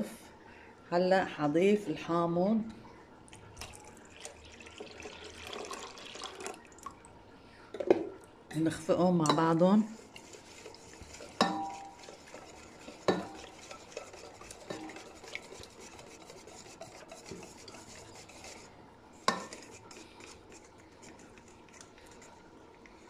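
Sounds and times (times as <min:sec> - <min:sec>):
whisk swishing liquid: 0:03.6 - 0:06.6, 0:09.0 - 0:23.0
whisk clinking on metal bowl: 0:08.6 - 0:22.3.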